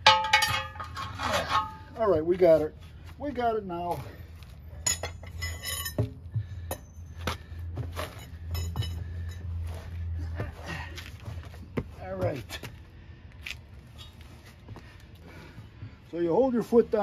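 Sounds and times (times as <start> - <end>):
tire irons clanging on wheel rim: 0.0 - 2.2, 4.7 - 12.7
low steady hum: 0.0 - 17.0.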